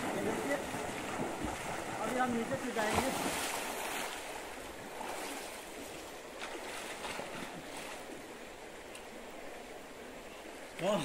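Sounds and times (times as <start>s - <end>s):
swimmers splashing: 0.0s - 4.4s
moving water: 0.0s - 11.0s.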